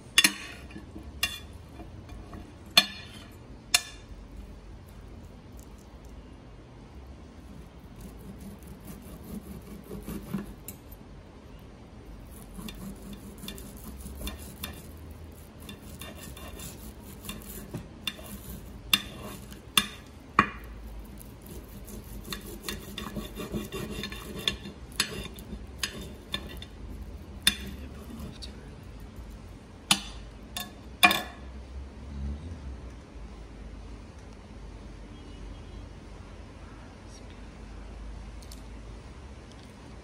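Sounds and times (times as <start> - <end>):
knife scraping on ceramic plate: 0.2 - 3.4, 8.0 - 10.8, 12.3 - 26.8, 27.4 - 28.3.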